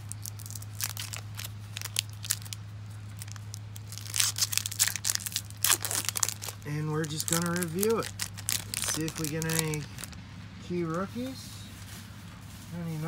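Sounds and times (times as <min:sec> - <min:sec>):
foil wrapper crinkling and tearing: 0:00.0 - 0:10.2
steady low hum: 0:00.0 - 0:13.0.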